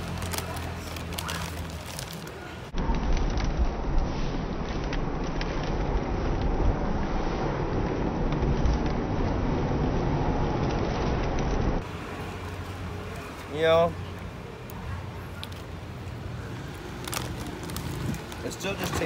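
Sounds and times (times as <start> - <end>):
potato chip crunching: 0.0 - 2.4, 16.6 - 19.0
street traffic: 0.0 - 19.0
wind rumble on microphone: 2.7 - 11.8, 17.6 - 19.0.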